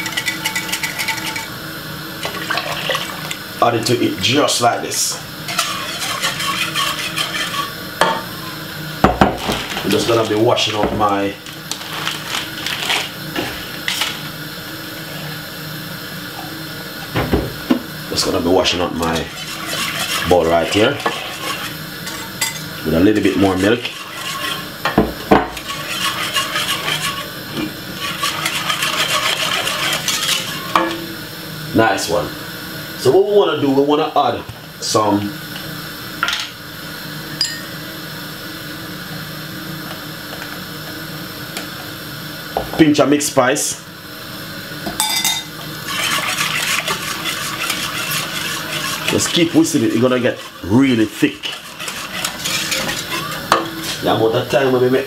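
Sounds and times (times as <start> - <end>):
whisk clinking on saucepan: 0.0 - 1.5, 5.5 - 8.2, 18.7 - 27.3, 28.0 - 31.0, 45.0 - 54.2
low machine hum: 0.0 - 55.0.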